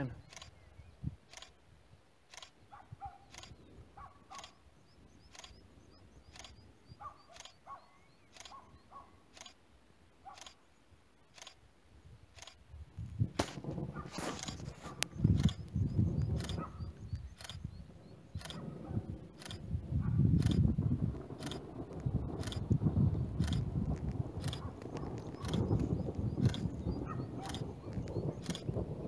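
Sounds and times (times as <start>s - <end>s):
small birds chirping: 0.0s - 1.6s, 2.3s - 9.6s, 14.2s - 19.6s, 22.3s - 29.0s
camera shutter clicking: 2.3s - 2.6s, 3.3s - 3.6s, 5.3s - 5.6s, 6.3s - 6.6s, 7.3s - 7.6s, 8.3s - 8.6s, 12.4s - 12.6s, 14.4s - 14.6s, 17.4s - 17.6s, 18.4s - 18.6s, 19.4s - 19.6s, 20.4s - 20.6s, 22.4s - 22.6s, 23.4s - 23.6s, 24.4s - 24.7s, 25.4s - 25.7s, 26.4s - 26.7s, 27.4s - 27.7s, 28.4s - 28.6s
low rumbling noise: 13.0s - 29.0s.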